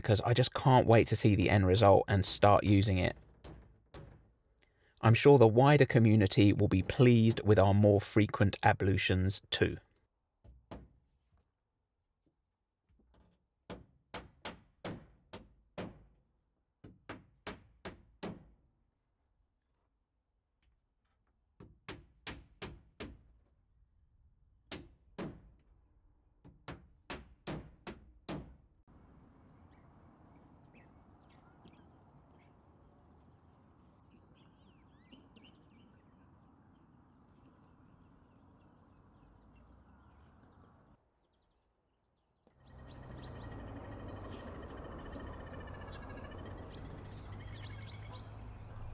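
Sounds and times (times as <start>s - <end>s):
faint bird chirps: 29.6s - 33.2s, 33.8s - 41.7s, 42.5s - 48.9s.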